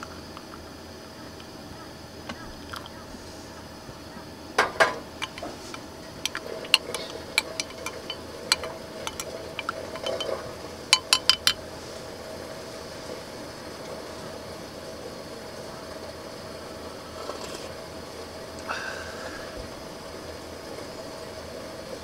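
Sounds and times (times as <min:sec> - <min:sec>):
spoon clinking against glass mug: 0:05.2 - 0:11.6.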